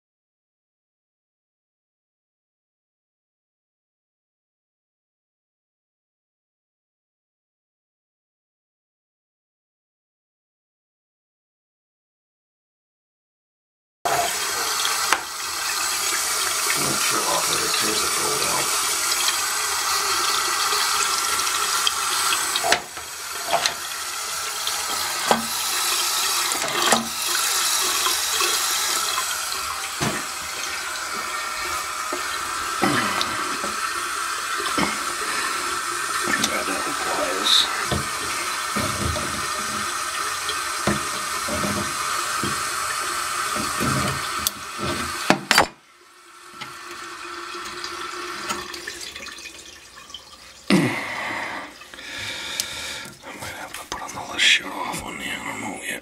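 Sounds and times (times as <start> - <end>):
toilet fill valve water hissing: 14.1 - 56.0.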